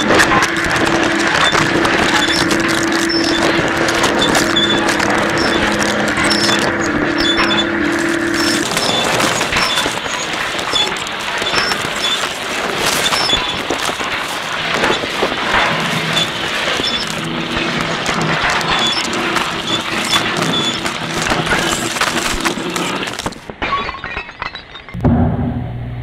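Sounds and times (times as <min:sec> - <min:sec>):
dense noisy wash: 0:00.0 - 0:23.5
crackling clattering texture: 0:00.0 - 0:25.2
steady low tone: 0:25.0 - 0:26.0.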